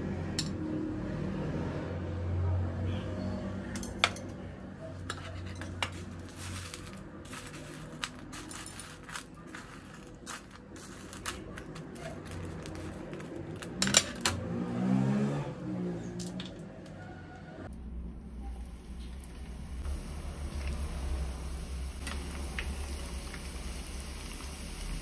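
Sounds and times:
dry noodles crackling and rustling: 0:05.9 - 0:13.8.

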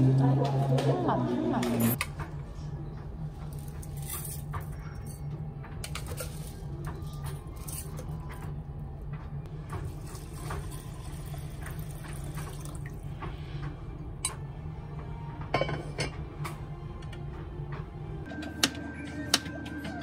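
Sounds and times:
water running: 0:09.5 - 0:13.3.

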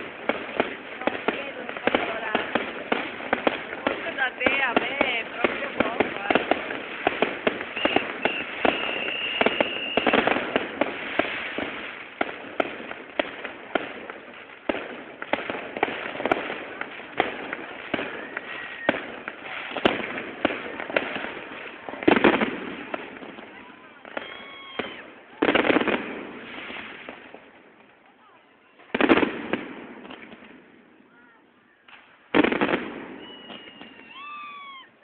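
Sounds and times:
fireworks bangs and crackles: 0:00.0 - 0:35.0
firework whistle: 0:07.2 - 0:11.7, 0:17.9 - 0:21.1, 0:22.8 - 0:25.6, 0:32.4 - 0:35.0.

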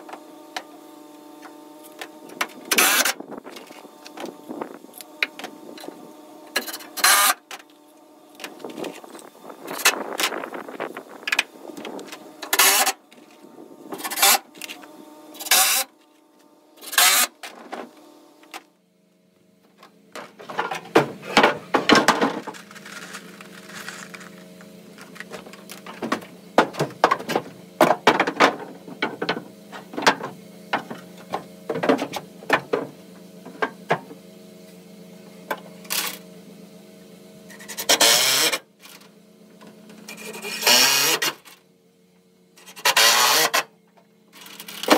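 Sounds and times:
steady low hum: 0:00.0 - 0:44.9
cordless drill driving screws: 0:12.5 - 0:13.0, 0:16.9 - 0:17.4, 0:40.2 - 0:41.3.

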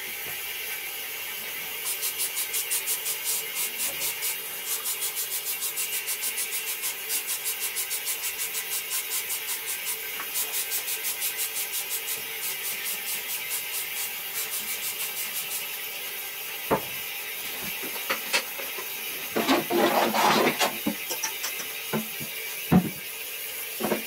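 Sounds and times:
toilet flushing: 0:00.0 - 0:24.0
scrubbing toilet bowl: 0:17.4 - 0:23.0.

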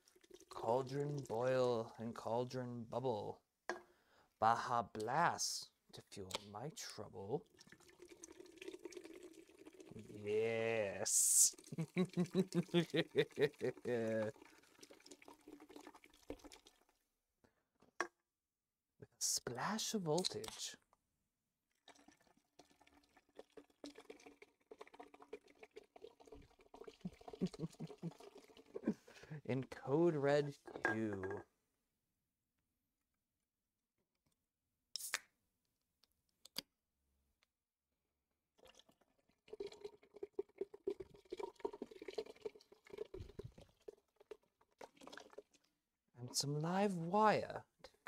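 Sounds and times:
soda pouring and fizzing: 0:00.0 - 0:02.0, 0:06.9 - 0:17.0, 0:21.6 - 0:29.4, 0:38.5 - 0:45.8
soda splashing into metal pot: 0:07.5 - 0:16.9.

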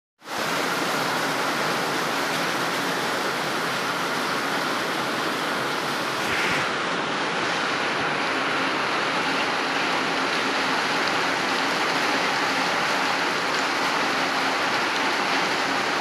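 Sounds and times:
rain on metal roof: 0:00.2 - 0:16.0.

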